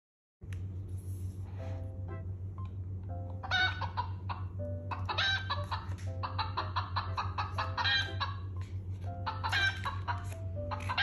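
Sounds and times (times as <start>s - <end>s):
steady low hum: 0.4s - 11.0s
recorded hen clucking: 3.4s - 8.6s, 9.2s - 11.0s.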